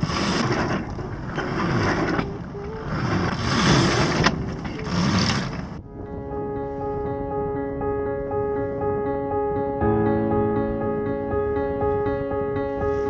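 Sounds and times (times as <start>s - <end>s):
wind buffeting microphone: 0.0s - 13.0s
soft piano music: 5.8s - 13.0s.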